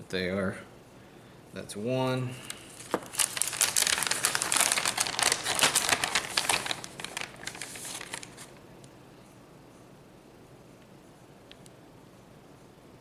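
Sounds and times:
plastic packaging crinkling: 2.4 - 8.6.

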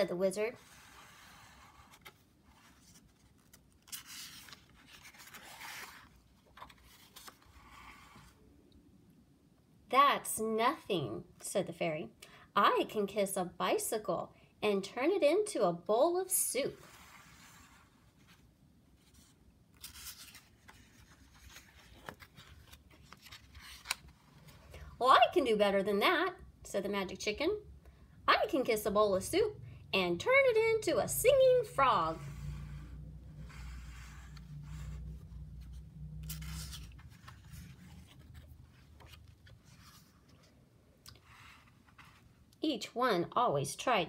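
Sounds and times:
paper page turning: 1.0 - 8.2, 19.0 - 24.6, 35.6 - 40.5.

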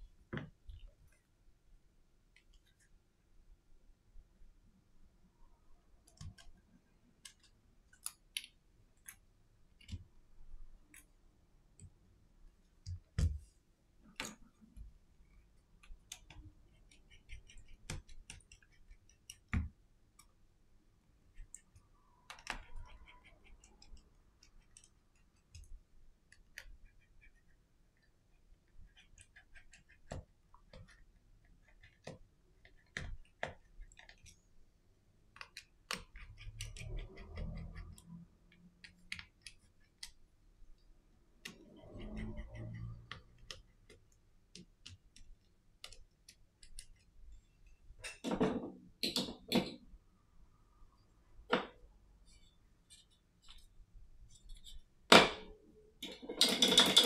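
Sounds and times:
small tools clicking on plastic: 35.3 - 40.2.

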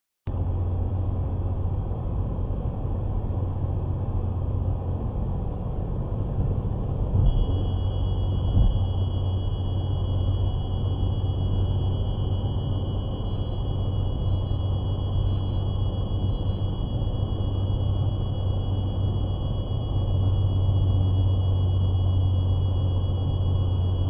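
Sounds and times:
car road and engine rumble: 0.3 - 24.0
high-pitched detector tone: 7.2 - 24.0.

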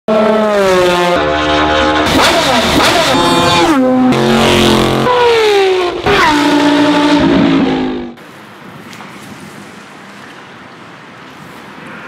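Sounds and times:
race car engines at high revs: 0.1 - 8.2.

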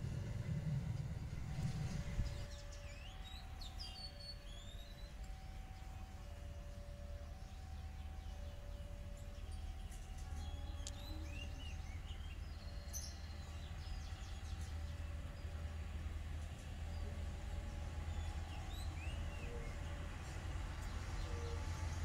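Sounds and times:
diesel engine rumble: 0.0 - 3.2.

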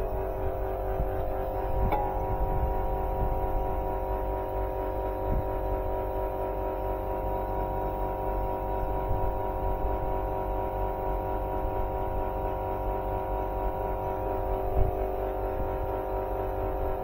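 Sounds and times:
air conditioner unit humming: 0.0 - 17.0
brief knock: 1.8 - 2.5.

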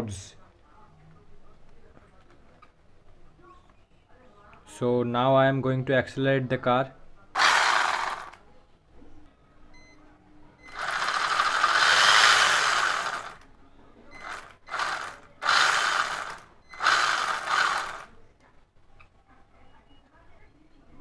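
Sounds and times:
toy truck electric motor whirring: 7.4 - 8.4, 10.7 - 13.4, 14.2 - 18.1.

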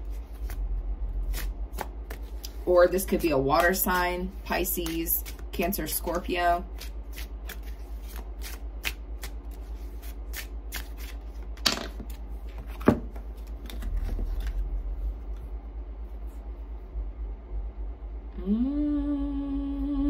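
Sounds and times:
cards shuffling: 0.0 - 0.6, 1.2 - 15.0.

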